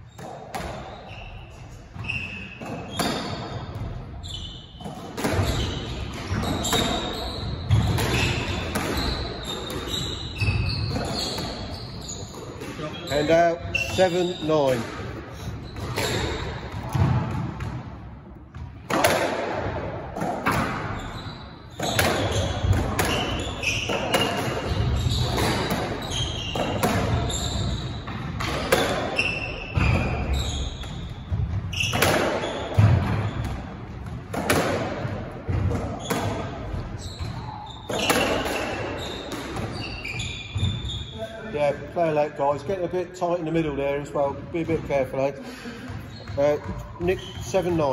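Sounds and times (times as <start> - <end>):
court shoes squeaking on wood: 0.0 - 17.9, 20.2 - 41.8, 45.7 - 47.9
squash racquet strikes: 0.2 - 4.1, 4.7 - 41.0.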